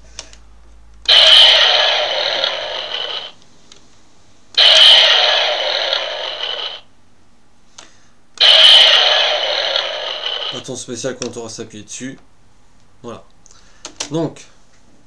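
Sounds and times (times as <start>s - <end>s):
toy electronic sound effect: 1.1s - 3.4s, 4.6s - 6.9s, 8.4s - 10.7s.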